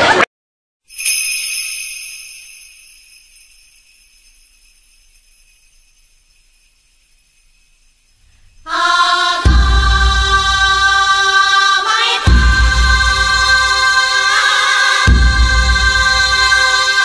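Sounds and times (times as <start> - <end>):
bell-like chime ringing: 0.9 - 9.5
music: 8.7 - 17.0.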